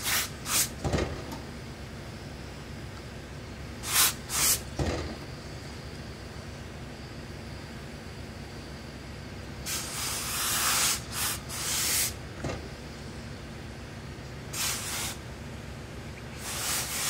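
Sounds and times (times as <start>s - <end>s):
steam iron hissing: 0.0s - 0.8s, 3.8s - 4.7s, 9.7s - 12.2s, 14.5s - 15.2s, 16.4s - 17.0s.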